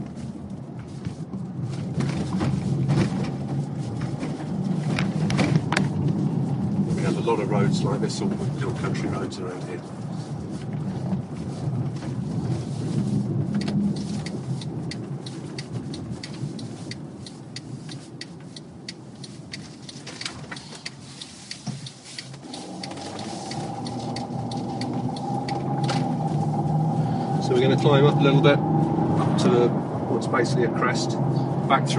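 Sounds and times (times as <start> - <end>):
car engine hum: 0.0 - 31.9
tyre and road rumble: 0.0 - 31.9
sharp ticks and clicks: 13.6 - 26.0.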